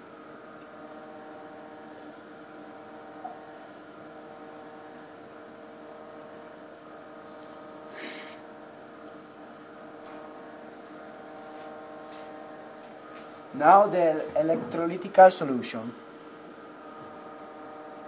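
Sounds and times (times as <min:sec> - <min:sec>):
lab equipment electrical hum: 0:00.0 - 0:18.0.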